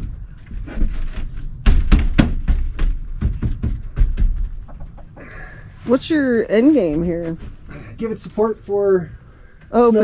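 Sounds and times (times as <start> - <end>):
knocks on wooden frame: 0.0 - 5.2.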